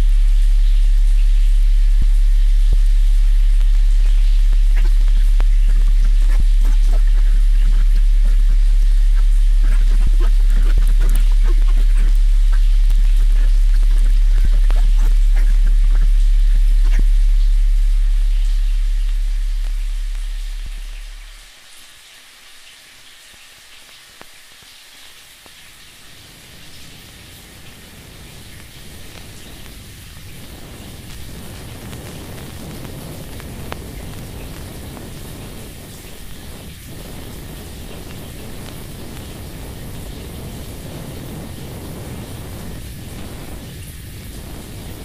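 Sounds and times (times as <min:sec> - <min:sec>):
deep low drone: 0:00.0 - 0:21.5
low rumble: 0:00.0 - 0:21.5
falling water hiss: 0:00.0 - 0:45.0
water drips: 0:00.0 - 0:45.0.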